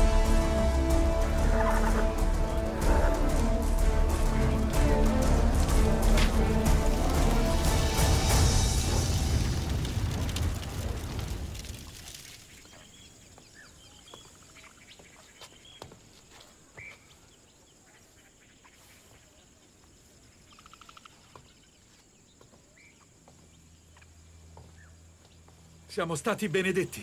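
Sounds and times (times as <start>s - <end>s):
faint birdsong: 12.3s - 27.0s.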